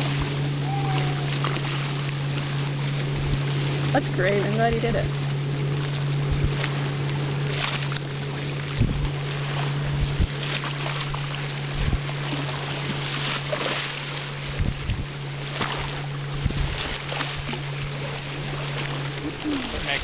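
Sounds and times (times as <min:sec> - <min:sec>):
motorboat engine running: 0:00.0 - 0:20.0
water wash: 0:00.0 - 0:20.0
wind buffeting microphone: 0:05.8 - 0:07.4, 0:08.2 - 0:10.5, 0:11.1 - 0:12.2, 0:14.4 - 0:20.0.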